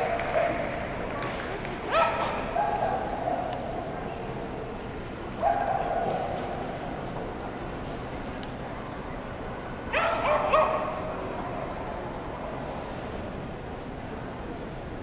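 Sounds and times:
busy hall background noise: 0.0 - 15.0
dog barking: 1.9 - 3.1, 9.9 - 11.0.

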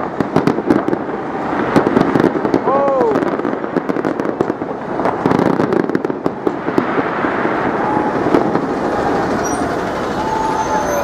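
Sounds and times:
fireworks crackling and popping: 0.0 - 11.0
crowd noise: 6.5 - 11.0
short whistles: 9.0 - 11.0.

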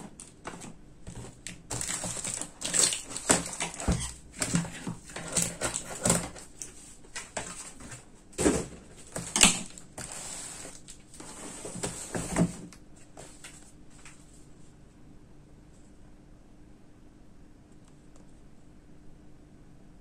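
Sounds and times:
cardboard box scraping and knocking: 7.4 - 13.4.

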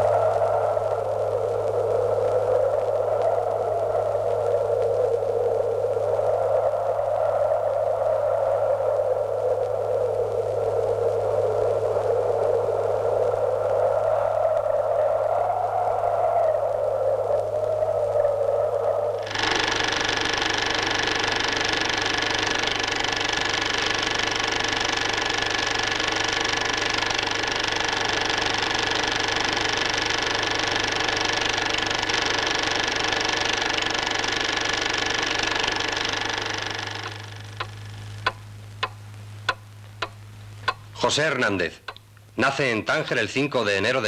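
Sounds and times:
dense machine-like noise: 0.0 - 43.7
low steady hum: 0.0 - 44.0
sharp ticks: 19.2 - 41.0, 41.7 - 42.3.

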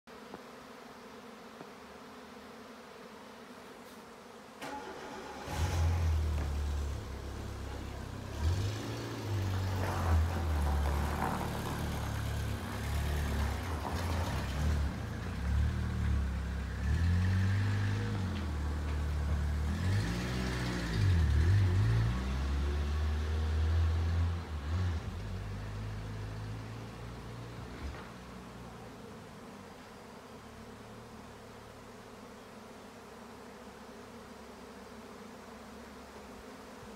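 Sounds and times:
swarm of flying insects humming: 0.1 - 36.9
motor engine droning: 4.6 - 29.7.

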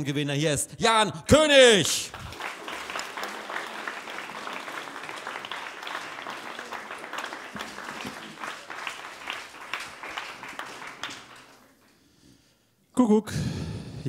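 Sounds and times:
audience applause: 1.5 - 12.0.

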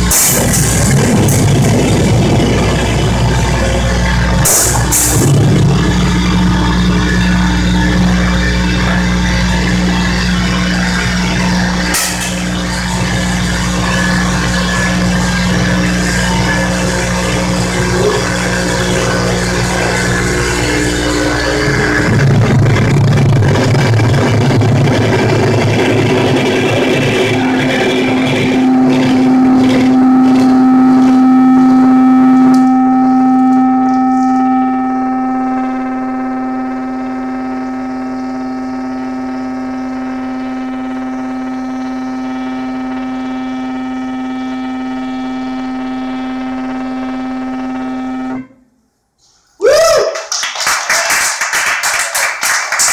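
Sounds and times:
harsh noise drone: 0.0 - 52.9
people clapping: 49.6 - 52.9.

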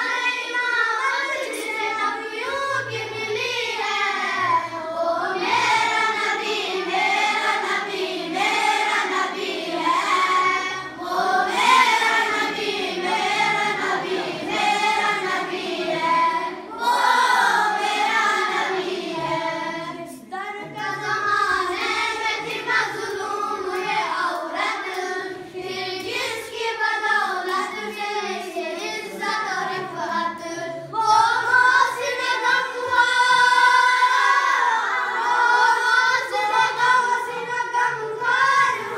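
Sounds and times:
boy singing unaccompanied: 19.4 - 34.2.

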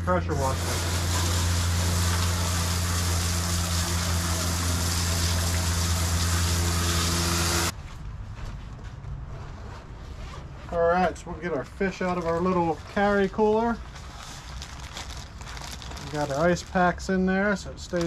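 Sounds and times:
hose nozzle spraying water: 0.3 - 7.7.

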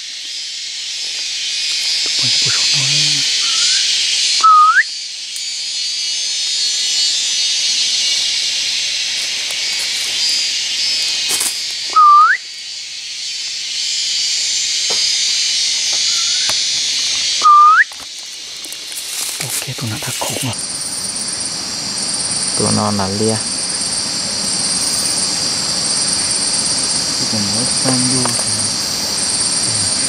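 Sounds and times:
high insect drone: 0.0 - 30.0
upward hooking whistle calls: 2.2 - 5.0, 11.9 - 12.5, 15.8 - 18.0.

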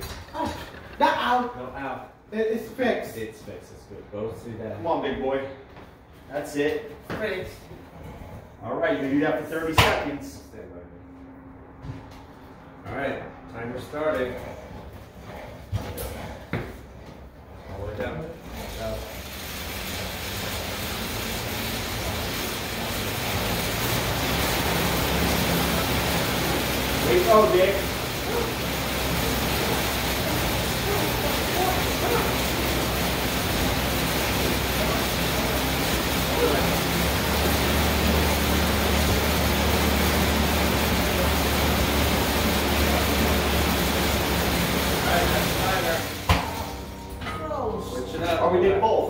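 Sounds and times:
exercise bike fan whooshing: 11.2 - 49.0.

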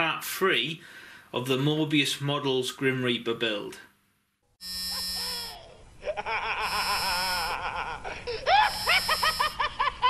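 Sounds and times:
cartoonish cackling laugh: 4.9 - 10.0.

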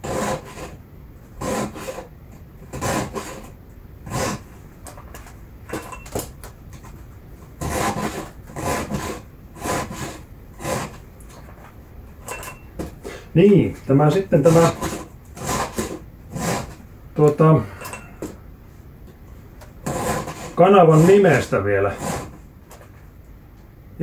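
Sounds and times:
file rasping on chainsaw chain: 0.0 - 0.7, 1.4 - 2.0, 2.7 - 3.5, 7.6 - 11.0, 19.8 - 22.3.

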